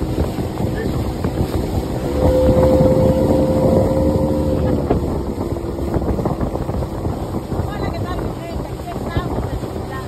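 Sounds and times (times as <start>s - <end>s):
motorboat engine: 0.0s - 10.0s
water rushing past hull: 0.0s - 10.0s
wind on microphone: 0.0s - 10.0s
steady droning tone: 2.0s - 6.4s.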